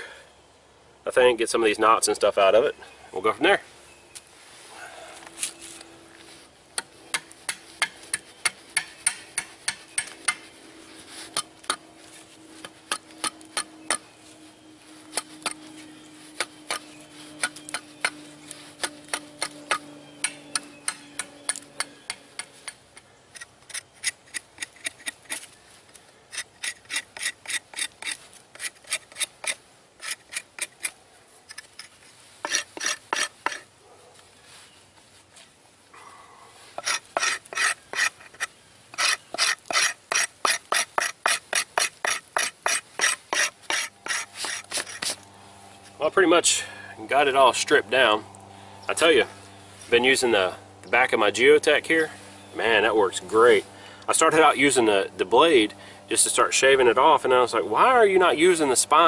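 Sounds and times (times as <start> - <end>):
knife scraping bark: 4.6 - 34.1, 36.5 - 46.9.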